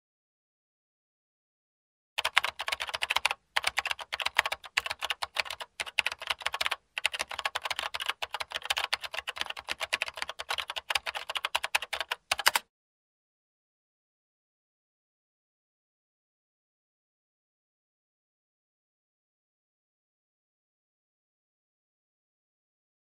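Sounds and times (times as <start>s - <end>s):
rapid keyboard typing clicks: 2.2s - 12.6s.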